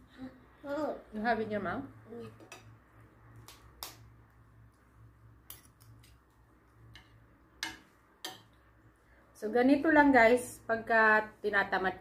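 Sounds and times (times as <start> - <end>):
cutlery clicking on plate: 5.5 - 6.2, 6.9 - 8.6.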